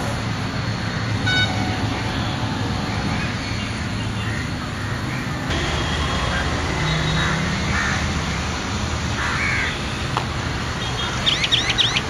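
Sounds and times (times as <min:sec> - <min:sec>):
crow cawing: 0:06.3 - 0:08.0, 0:09.2 - 0:09.8, 0:10.8 - 0:12.0.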